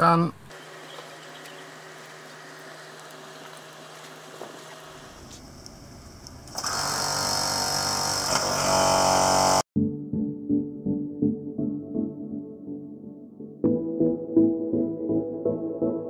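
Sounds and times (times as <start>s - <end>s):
small engine buzzing: 6.2s - 9.6s.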